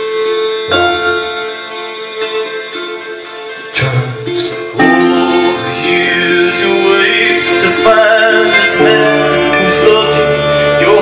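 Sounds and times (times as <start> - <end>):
harp playing: 0.7 - 11.0
wavering melodic line: 0.7 - 11.0.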